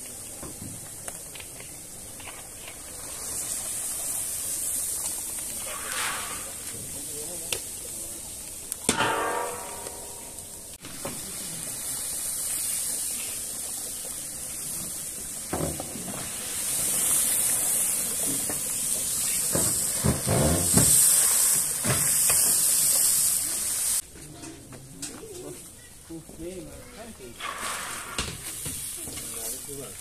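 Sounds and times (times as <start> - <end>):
steam hissing: 0.0 - 24.0, 27.3 - 30.0
water poured with a splash: 2.8 - 7.1.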